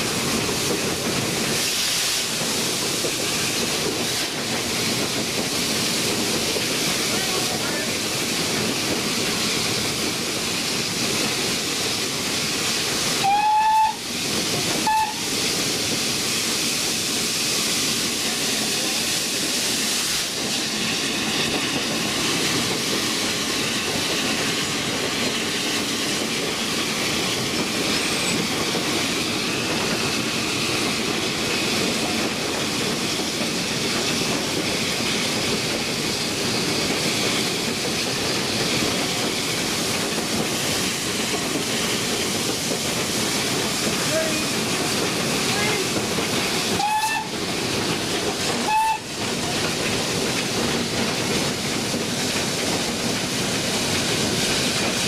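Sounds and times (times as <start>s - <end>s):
steam and wheels rushing: 0.0s - 55.0s
steam locomotive whistle: 13.2s - 14.1s, 14.8s - 15.4s, 46.8s - 47.4s, 48.6s - 49.1s.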